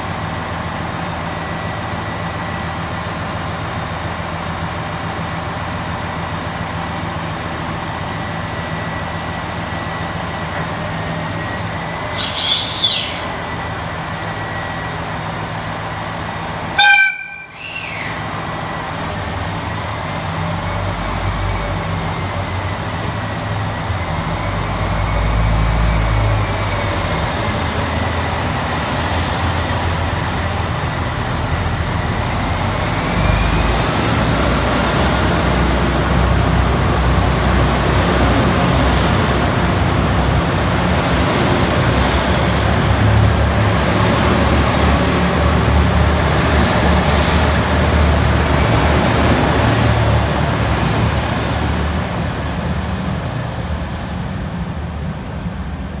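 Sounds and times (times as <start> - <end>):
diesel train engines: 0.0 - 56.0
train wheel and rail noise: 0.0 - 56.0.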